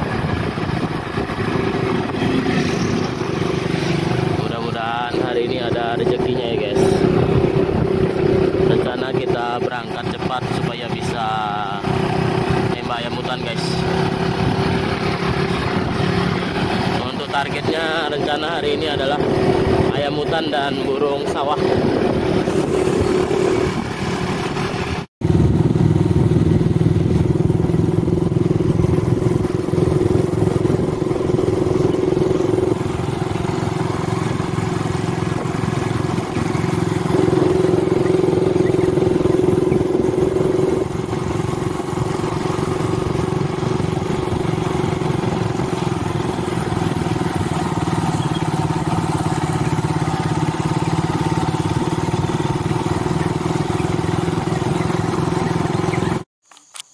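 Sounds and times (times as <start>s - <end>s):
motorcycle engine running: 0.0s - 56.3s.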